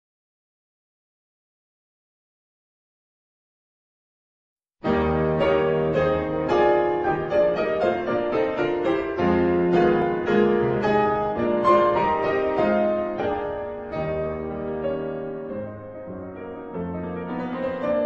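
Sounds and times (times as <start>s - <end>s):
classical piano music: 4.8s - 18.0s.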